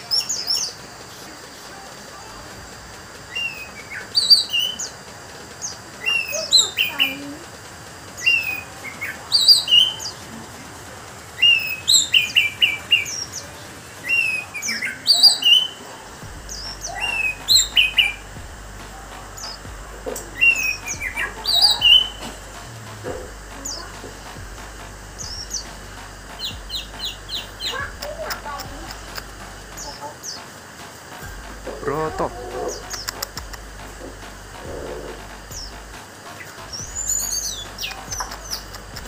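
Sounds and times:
thrush singing whistles: 0.0 - 33.7, 34.5 - 39.0.

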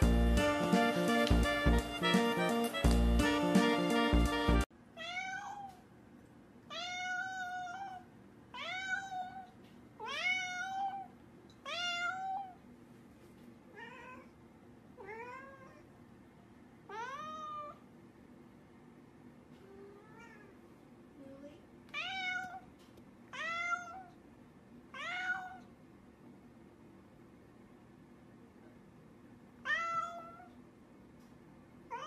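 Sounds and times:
cat meowing: 5.0 - 5.8, 6.7 - 12.6, 16.9 - 17.8, 21.9 - 22.7, 23.3 - 24.1, 24.9 - 25.7, 29.6 - 30.6.

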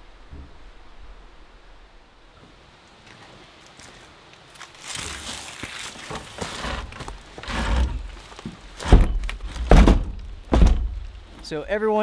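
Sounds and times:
footsteps and shuffling: 2.4 - 9.8
wooden door banging shut: 8.8 - 11.0.

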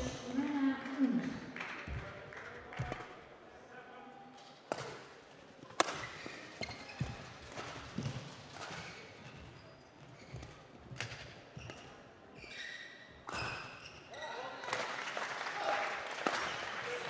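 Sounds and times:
rackets hitting shuttlecock: 4.7 - 9.5, 13.2 - 13.8
shoe squeaks: 6.0 - 7.4, 8.8 - 10.7, 11.6 - 14.4.

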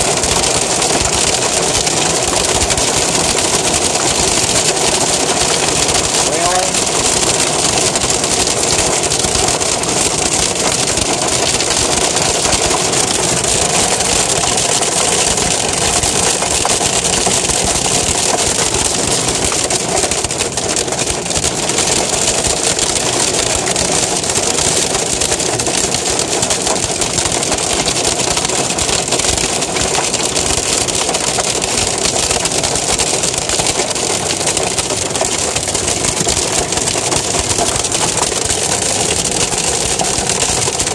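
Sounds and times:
hail and rain on car roof: 0.0 - 40.9.

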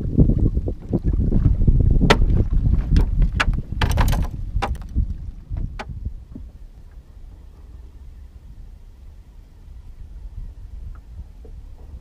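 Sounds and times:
wind rumble on microphone: 0.0 - 12.0
fish knocking against boat: 2.1 - 4.9.

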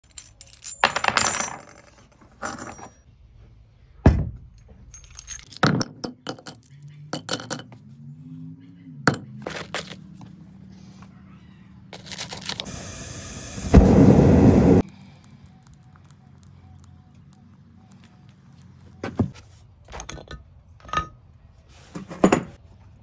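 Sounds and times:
brass pieces clinking and clattering: 0.0 - 3.0, 4.9 - 7.8.

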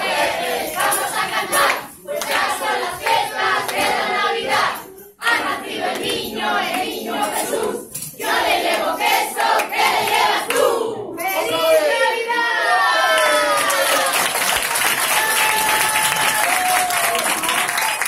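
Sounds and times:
group singing and shouting: 0.0 - 13.2.

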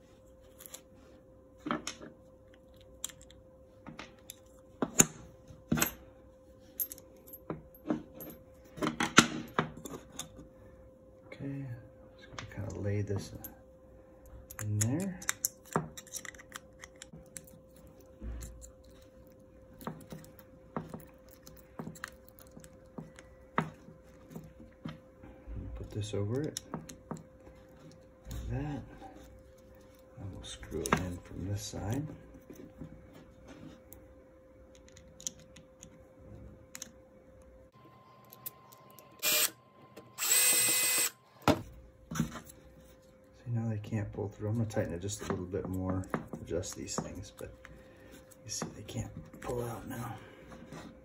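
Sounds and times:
faint steady hum: 0.0 - 51.0
cordless drill whining: 39.2 - 39.6, 40.2 - 41.2.

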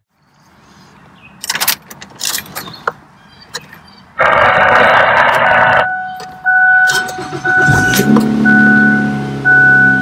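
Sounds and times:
car keys jingling: 1.4 - 2.9, 5.3 - 8.3
car engine starting: 4.2 - 10.0.

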